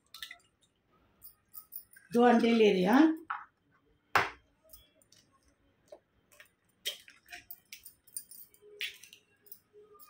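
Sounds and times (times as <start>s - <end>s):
glass bangles clinking: 0.0s - 2.6s, 4.6s - 5.5s, 6.3s - 10.0s.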